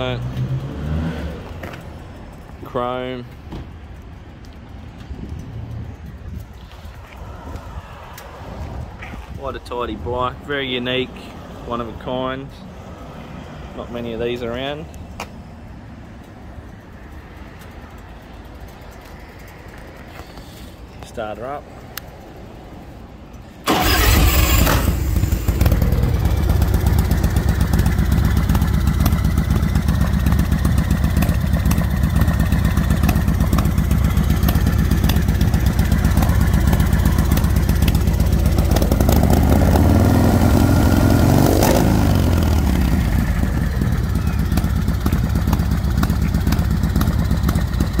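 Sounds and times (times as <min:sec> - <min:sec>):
motorcycle engine starting: 0:23.6 - 0:48.0
motorcycle engine idling: 0:23.7 - 0:40.5, 0:42.0 - 0:48.0
motorcycle engine revving: 0:23.7 - 0:48.0.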